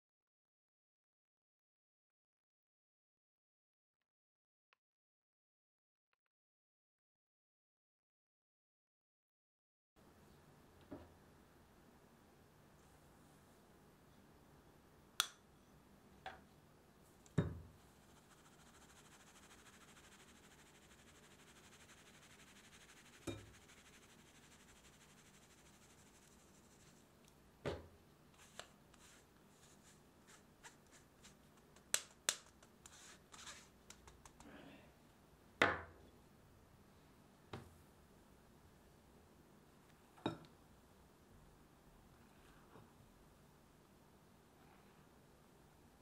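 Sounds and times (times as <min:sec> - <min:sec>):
flour sifting through mesh: 0:17.9 - 0:27.1, 0:28.4 - 0:31.8, 0:32.6 - 0:34.4.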